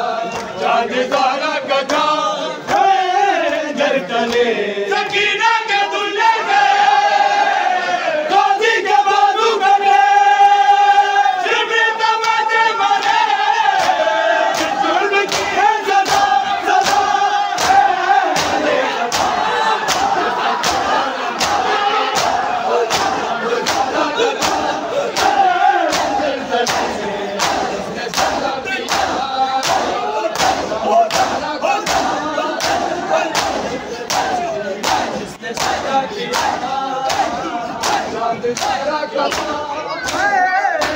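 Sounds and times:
crowd chanting with held notes: 0:00.0 - 0:40.9
hands slapping chests: 0:13.0 - 0:40.9.

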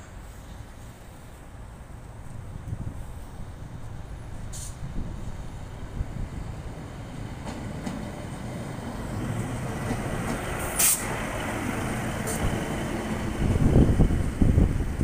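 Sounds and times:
diesel railcar passing: 0:00.0 - 0:15.0
short sharp hiss: 0:04.5 - 0:04.9, 0:10.6 - 0:11.2.

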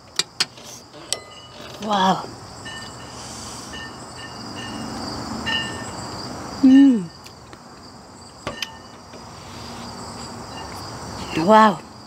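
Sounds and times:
insects chirping: 0:00.0 - 0:12.0
woman humming while eating: 0:06.6 - 0:07.1.

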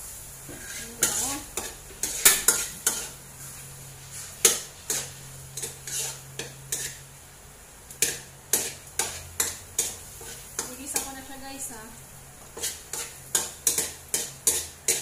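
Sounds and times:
metal utensil scraping a pot: 0:00.6 - 0:03.1, 0:04.9 - 0:07.0.

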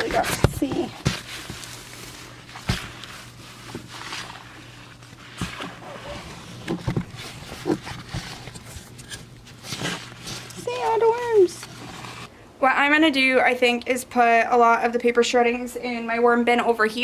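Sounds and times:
paper rustling and crackling: 0:00.0 - 0:12.3.

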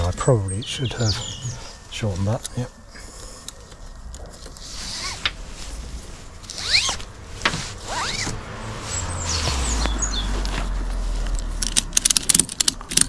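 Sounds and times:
strap webbing zipping through buckle: 0:04.6 - 0:05.7, 0:06.4 - 0:12.4.

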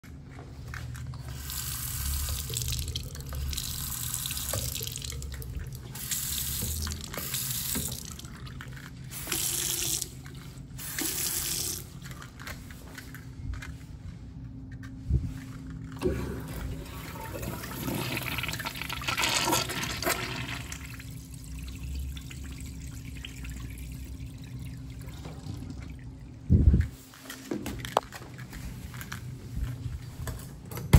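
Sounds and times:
urinal flushing: 0:01.0 - 0:12.2, 0:15.9 - 0:26.5
water running into sink basin: 0:01.3 - 0:08.5, 0:16.0 - 0:26.4.

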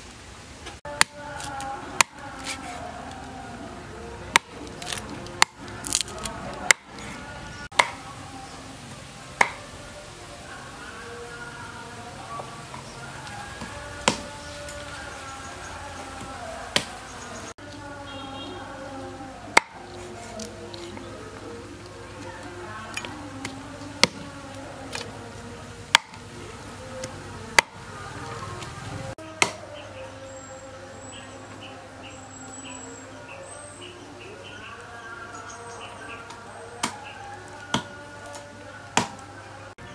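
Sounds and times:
cleaver chopping on wooden block: 0:04.3 - 0:06.1, 0:06.7 - 0:06.9, 0:07.7 - 0:08.0, 0:09.4 - 0:09.6, 0:13.6 - 0:14.3, 0:19.5 - 0:19.8, 0:23.4 - 0:24.3, 0:25.9 - 0:26.2, 0:27.6 - 0:27.8, 0:29.4 - 0:29.6, 0:39.0 - 0:39.2.

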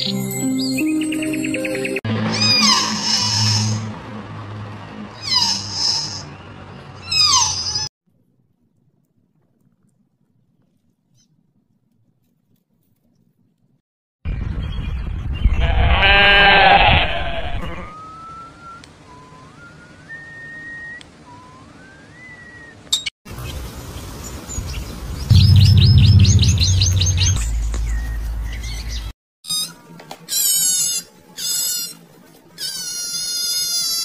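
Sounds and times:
goat bleating: 0:15.6 - 0:17.9
short rising whistled notes: 0:25.3 - 0:28.9
pulsing sound with low hum: 0:25.3 - 0:29.1.

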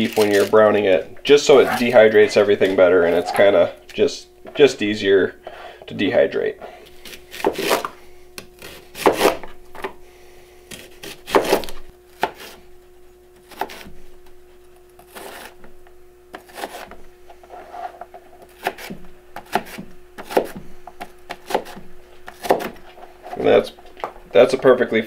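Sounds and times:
knife dicing onion on board: 0:07.0 - 0:09.9, 0:10.7 - 0:12.6, 0:13.4 - 0:13.9, 0:16.3 - 0:17.0, 0:18.5 - 0:22.8.

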